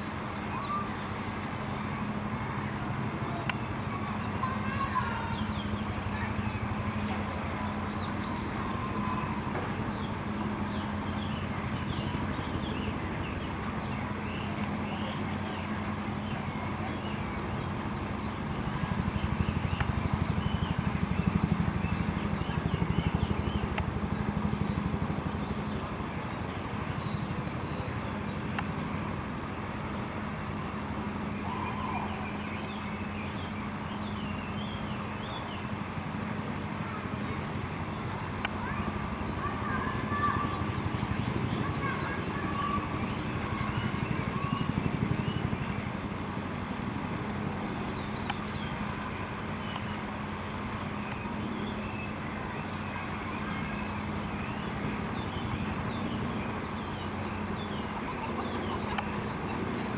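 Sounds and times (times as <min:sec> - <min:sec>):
low mechanical hum: 0:00.0 - 0:59.9
small birds chirping: 0:03.3 - 0:28.7, 0:36.9 - 0:45.9, 0:47.6 - 0:59.9.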